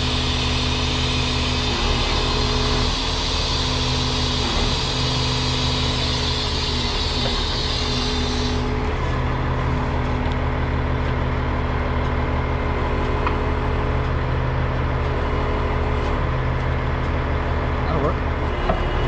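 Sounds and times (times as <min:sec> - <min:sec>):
truck engine idling: 0:02.4 - 0:19.0.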